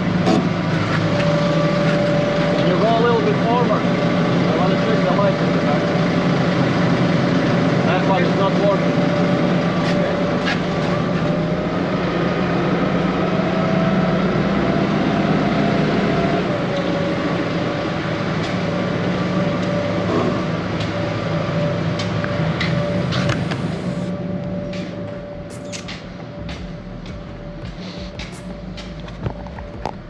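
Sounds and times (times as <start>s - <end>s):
vehicle engine drone: 0.0s - 30.0s.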